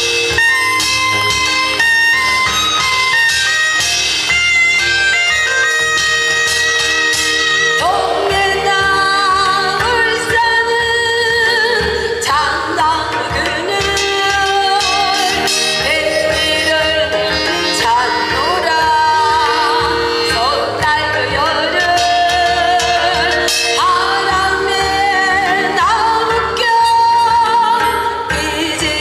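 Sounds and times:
woman singing into a microphone: 7.2 - 29.0.

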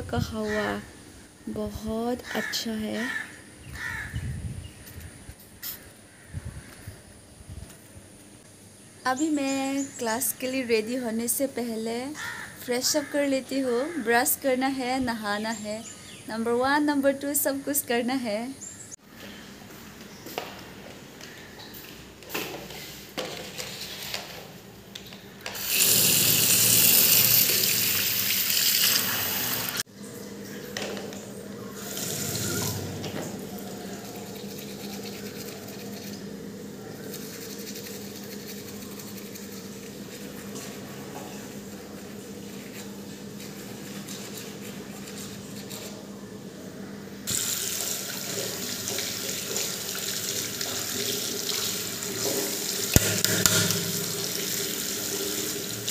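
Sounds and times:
teeth brushing: 34.0 - 36.2, 37.0 - 40.3
tap running into basin: 47.3 - 55.9.

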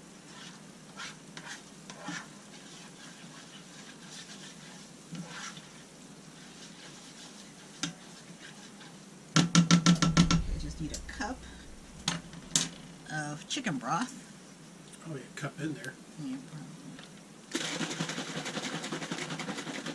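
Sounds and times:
roux sizzling in a pan: 0.0 - 9.4
utensil scraping a pan: 0.2 - 9.0
loud knocks: 9.4 - 13.0.

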